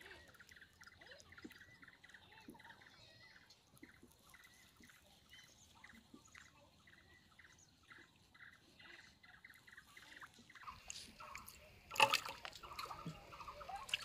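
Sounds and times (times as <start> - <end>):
fish splashing in water: 10.7 - 14.0.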